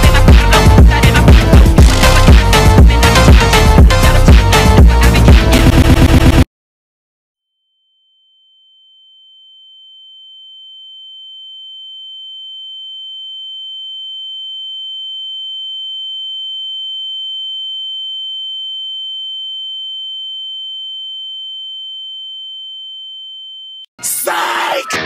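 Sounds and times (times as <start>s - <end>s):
music with steady beat: 0.0s - 6.4s.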